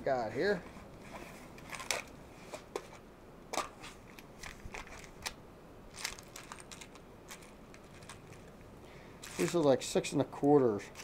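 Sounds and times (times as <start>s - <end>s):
small parts clicking and rattling: 4.4s - 8.6s, 9.2s - 9.7s.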